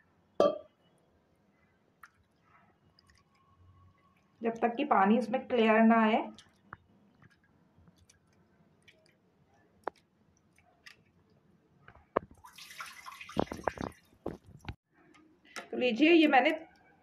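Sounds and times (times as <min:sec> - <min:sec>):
water drips and small splashes: 0:01.9 - 0:14.8
water pouring: 0:12.2 - 0:14.8.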